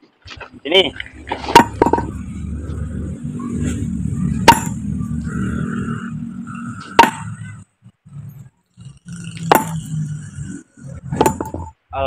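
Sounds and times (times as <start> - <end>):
sledgehammer striking stone: 4.4 - 4.8, 7.0 - 7.3, 9.5 - 9.8, 11.2 - 11.6.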